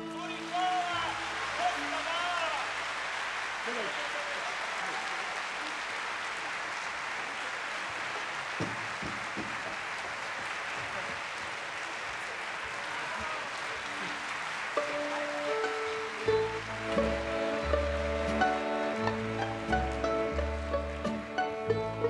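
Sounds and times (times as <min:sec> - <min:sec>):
audience applauding: 0:00.0 - 0:22.0
music: 0:14.8 - 0:22.0.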